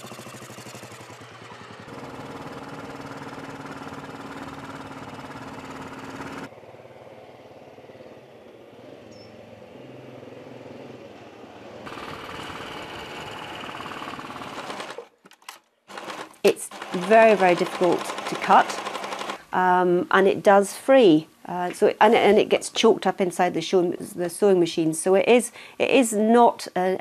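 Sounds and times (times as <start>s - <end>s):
motorcycle engine running: 0.0s - 9.6s, 11.8s - 15.1s.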